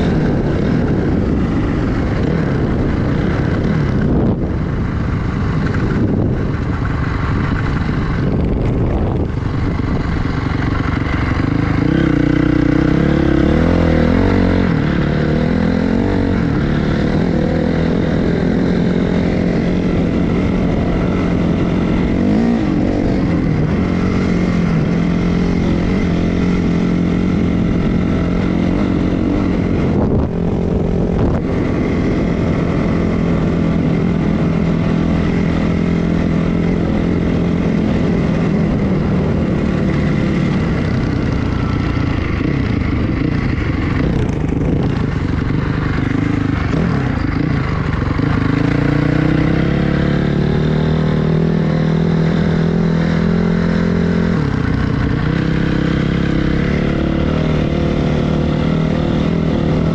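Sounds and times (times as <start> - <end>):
dirt bike engine revving: 7.0 - 59.9.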